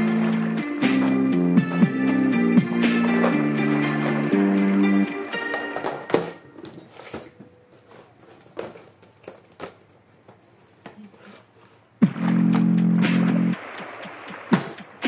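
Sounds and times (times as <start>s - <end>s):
music: 0.0s - 6.7s, 12.0s - 15.0s.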